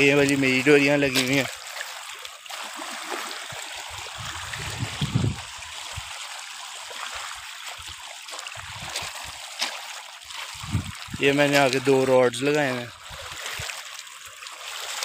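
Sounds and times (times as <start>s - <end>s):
wind rumble on microphone: 4.0s - 6.1s, 8.6s - 9.1s, 10.6s - 11.3s.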